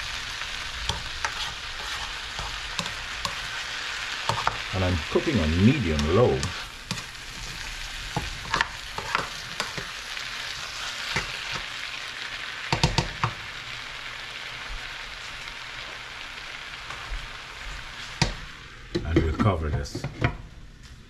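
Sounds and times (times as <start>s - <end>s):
vegetables sizzling in skillet: 0.0s - 19.3s
spoon knocking against pan: 12.7s - 13.4s.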